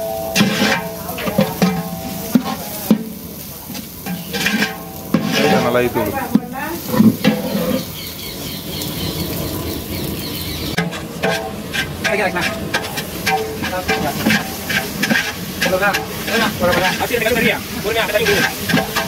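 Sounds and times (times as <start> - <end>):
ladle clanking against pot: 0.0 - 5.7, 10.7 - 17.6
food sizzling: 0.0 - 19.0
ladle scraping pot: 0.1 - 8.2, 10.7 - 19.0.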